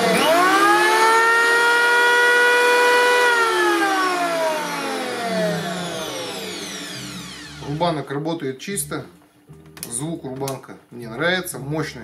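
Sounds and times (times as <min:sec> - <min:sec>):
electric planer whining: 0:00.0 - 0:08.0.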